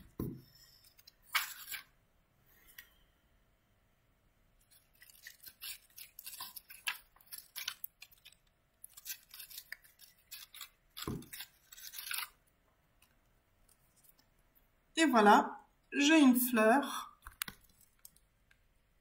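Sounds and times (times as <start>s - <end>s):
craft paper rustling and crinkling: 0.2s - 2.0s, 4.6s - 12.4s.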